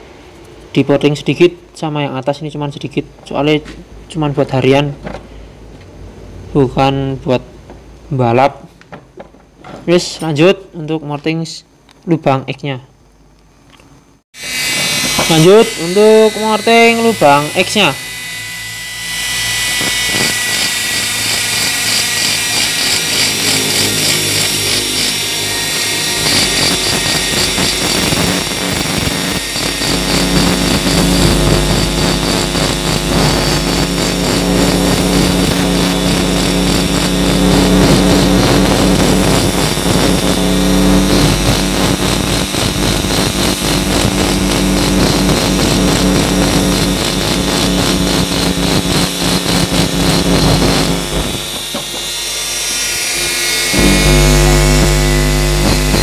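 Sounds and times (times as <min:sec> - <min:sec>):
rotary grinder grinding metal: 0:14.4 - 0:56.0.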